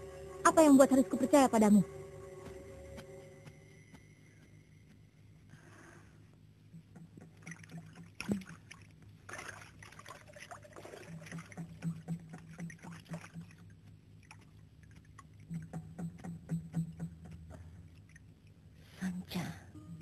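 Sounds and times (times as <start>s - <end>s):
low steady hum: 0.0s - 20.0s
water splashing in pool: 7.4s - 15.5s.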